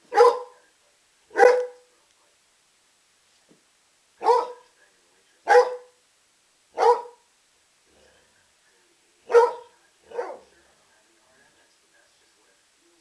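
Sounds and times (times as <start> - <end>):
dog barking: 0.1 - 0.6, 1.3 - 1.8, 4.2 - 4.7, 5.4 - 6.0, 6.8 - 7.3, 9.3 - 10.5.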